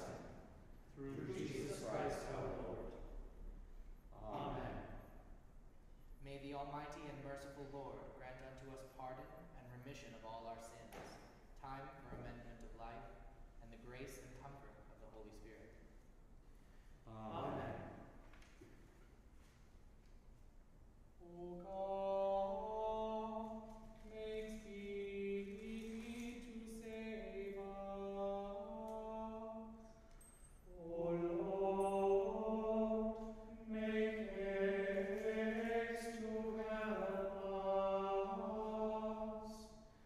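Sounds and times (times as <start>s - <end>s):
choir chanting in unison: 0.0s - 0.4s, 1.0s - 3.1s, 4.2s - 5.0s, 17.2s - 17.9s, 21.6s - 23.7s, 24.3s - 29.8s, 30.7s - 39.7s.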